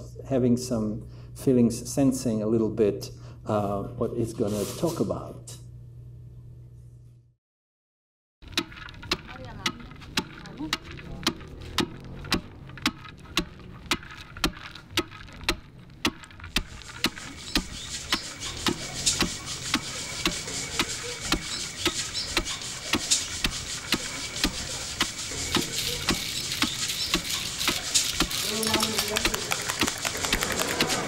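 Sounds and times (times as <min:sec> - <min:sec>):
sharp clicking: 0:08.4 - 0:31.0
flour sifting through sieve: 0:08.6 - 0:31.0.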